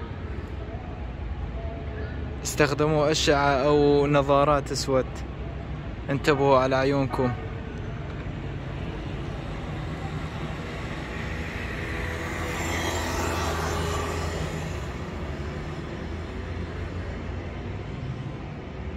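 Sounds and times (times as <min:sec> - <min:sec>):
low street rumble: 0:00.0 - 0:18.9
motor scooter passing: 0:09.6 - 0:17.1.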